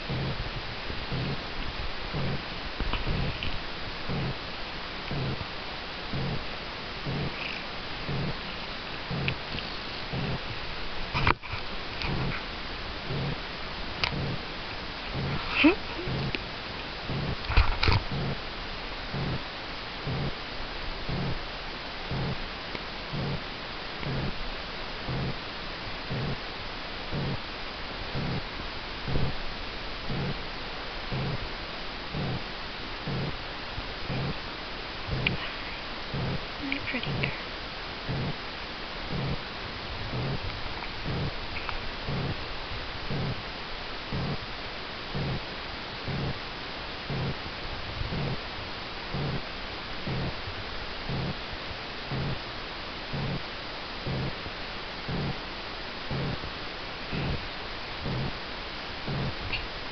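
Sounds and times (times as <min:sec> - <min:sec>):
cat purring: 0:00.0 - 0:04.4, 0:05.1 - 0:05.5, 0:06.1 - 0:12.4, 0:13.0 - 0:13.4, 0:14.0 - 0:16.4, 0:17.0 - 0:18.4, 0:19.1 - 0:19.4, 0:20.0 - 0:20.4, 0:21.0 - 0:21.4, 0:22.1 - 0:22.4, 0:23.1 - 0:23.4, 0:24.0 - 0:24.4, 0:25.0 - 0:25.4, 0:26.0 - 0:26.4, 0:27.1 - 0:27.4, 0:30.1 - 0:30.4, 0:31.1 - 0:31.5, 0:32.1 - 0:33.4, 0:34.0 - 0:34.4, 0:35.0 - 0:38.5, 0:39.1 - 0:42.4, 0:43.0 - 0:43.4, 0:44.1 - 0:44.4, 0:45.1 - 0:46.4, 0:47.0 - 0:48.4, 0:49.1 - 0:49.4, 0:50.0 - 0:50.4, 0:51.1 - 0:51.4, 0:52.1 - 0:52.4, 0:53.1 - 0:53.4, 0:54.0 - 0:54.4, 0:55.0 - 0:55.4, 0:56.1 - 0:56.4, 0:57.0 - 0:57.4, 0:58.0 - 0:58.4, 0:59.1 - 0:59.6
steady hiss: 0:00.0 - 0:59.9.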